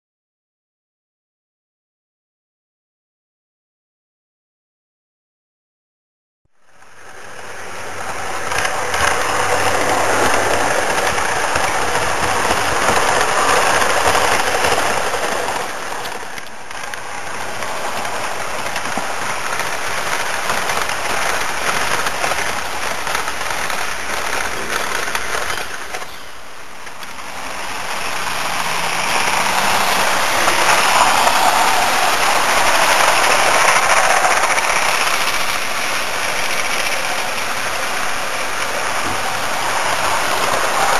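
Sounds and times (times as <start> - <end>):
model train rattling rumble: 6.6 - 40.9.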